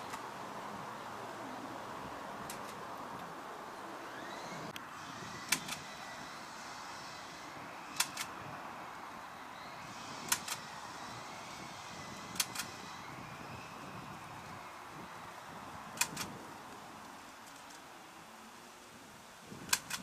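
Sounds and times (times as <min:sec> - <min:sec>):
steady hiss: 0:00.0 - 0:20.0
sharp double clicks: 0:05.5 - 0:05.9, 0:07.9 - 0:08.3, 0:10.2 - 0:10.7, 0:12.3 - 0:12.7, 0:16.0 - 0:16.3, 0:19.7 - 0:20.0.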